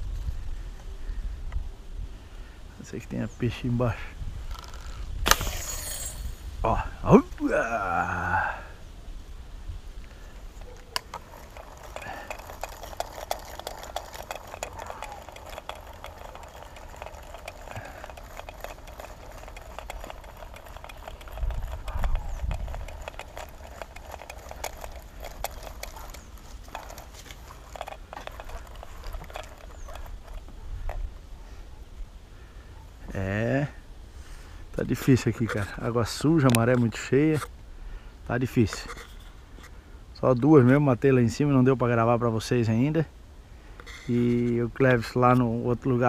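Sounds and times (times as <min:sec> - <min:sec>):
wind buffeting microphone: 0:09.2 - 0:31.3
light clicking and rustling: 0:10.0 - 0:31.2.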